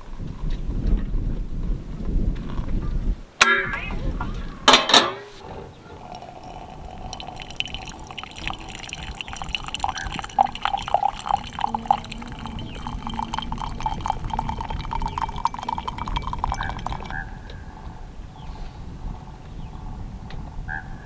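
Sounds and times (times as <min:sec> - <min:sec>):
coffee pouring into mug: 0:06.0 - 0:17.2.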